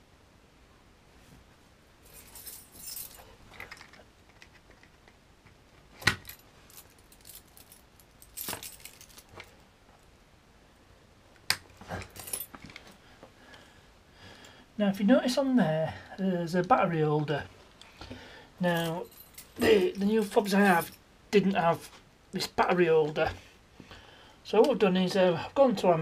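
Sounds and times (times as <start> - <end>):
keys jangling: 2.1 - 4.0, 6.0 - 9.5, 11.9 - 12.9, 18.7 - 21.0.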